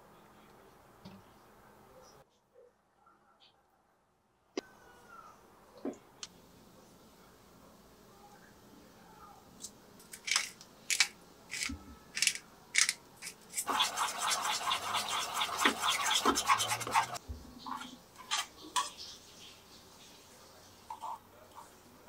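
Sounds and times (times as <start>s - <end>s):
spoon scraping metal bowl: 13.2s - 17.2s.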